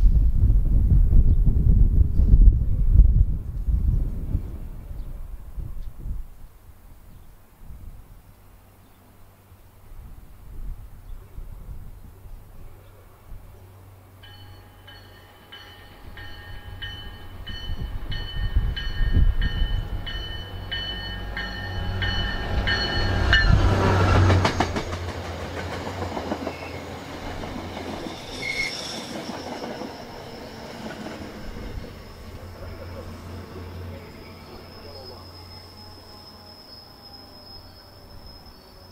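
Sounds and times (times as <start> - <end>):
train coaches rumbling past: 12.5 - 38.9
locomotive engine hum: 12.6 - 37.3
locomotive bell ringing: 14.2 - 24.2
clicking train wheels: 14.3 - 33.1
wheel squeal: 28.0 - 32.4, 34.0 - 38.9.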